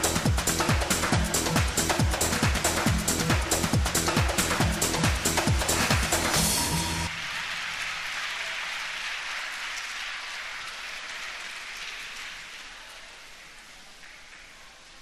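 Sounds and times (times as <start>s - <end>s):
audience applauding: 3.9s - 15.0s.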